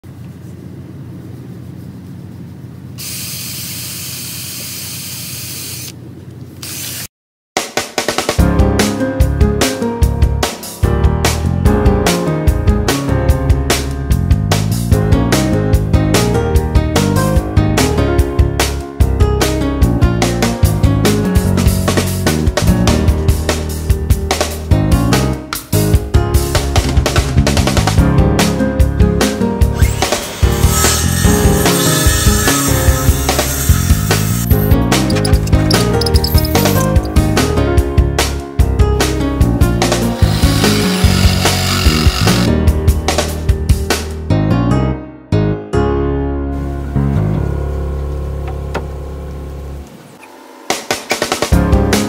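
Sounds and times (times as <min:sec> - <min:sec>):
air spray hiss: 0:03.0 - 0:05.9
drum kit beat: 0:07.6 - 0:12.2
rock backing music: 0:07.6 - 0:49.9, 0:50.7 - 0:52.0.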